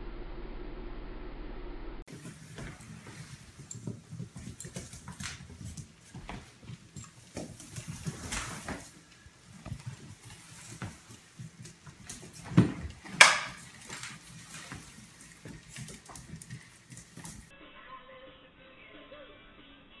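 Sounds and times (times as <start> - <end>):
broom scraping on tile floor: 7.3 - 17.5.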